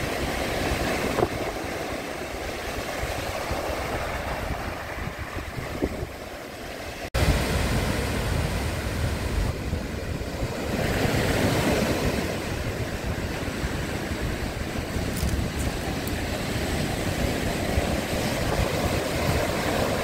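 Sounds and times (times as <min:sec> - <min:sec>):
ocean surf breaking on shore: 0:00.0 - 0:20.0
wind rumbling on microphone: 0:00.0 - 0:20.0.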